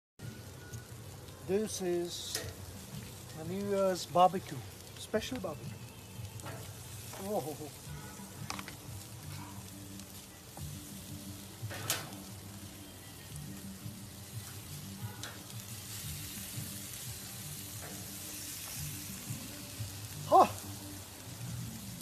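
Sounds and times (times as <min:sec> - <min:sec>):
chicken sizzling on grill: 0:00.2 - 0:22.0.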